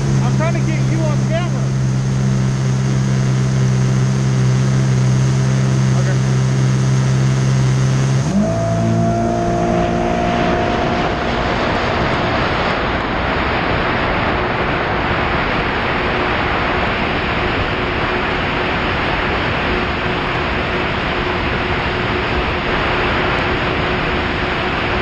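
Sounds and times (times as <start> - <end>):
jet ski engine revving: 0.0 - 25.0
wind and water rushing: 8.3 - 25.0.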